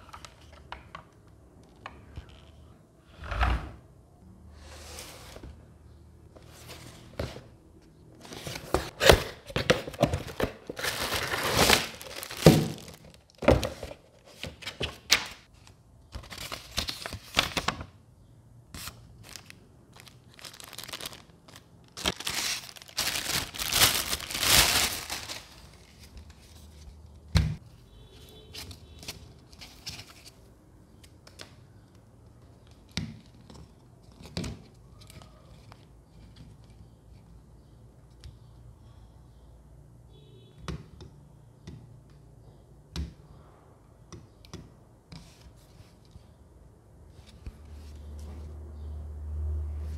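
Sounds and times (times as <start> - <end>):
plastic packaging crinkling: 8.4 - 13.8, 18.8 - 26.2.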